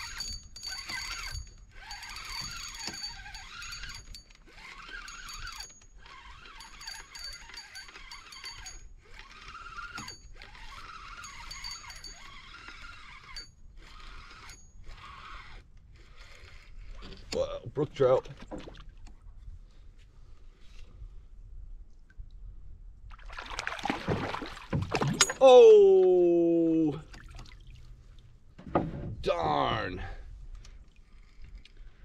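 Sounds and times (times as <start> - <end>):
fishing reel cranking: 0.0 - 17.2.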